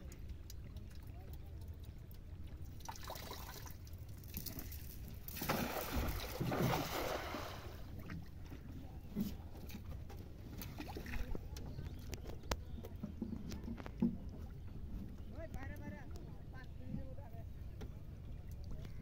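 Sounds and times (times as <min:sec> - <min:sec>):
water sounds: 0:00.0 - 0:19.0
net splashing into water: 0:02.8 - 0:08.2.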